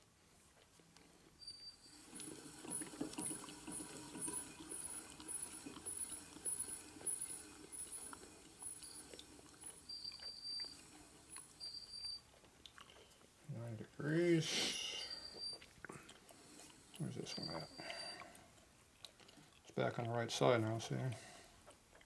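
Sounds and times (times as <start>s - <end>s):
faint high ticking: 1.4s - 13.1s.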